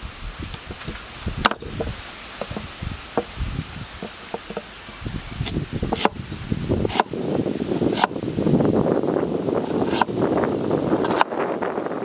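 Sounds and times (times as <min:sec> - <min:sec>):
knife cutting on wooden block: 0:01.4 - 0:03.3, 0:04.0 - 0:06.2, 0:06.9 - 0:07.1, 0:07.8 - 0:08.2, 0:09.6 - 0:10.1, 0:11.0 - 0:11.3.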